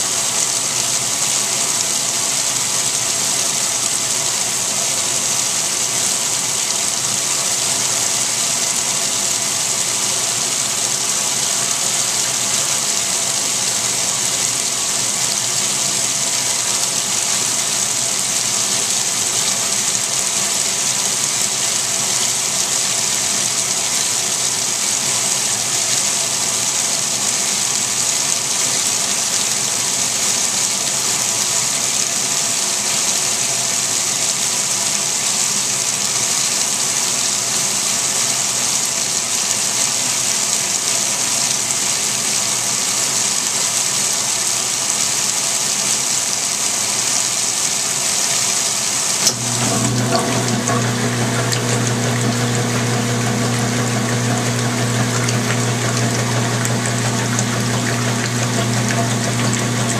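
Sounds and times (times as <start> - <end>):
water gushing into washing machine: 0.0 - 34.5, 49.0 - 59.9.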